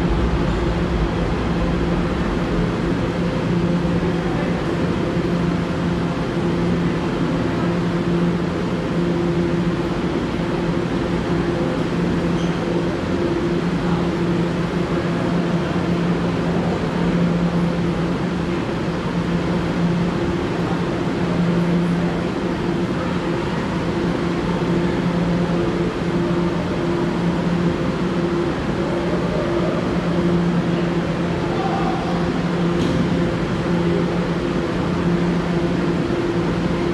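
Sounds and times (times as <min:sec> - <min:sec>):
low steady tones: 0:00.0 - 0:36.9
subway station rumble and hum: 0:00.0 - 0:36.9.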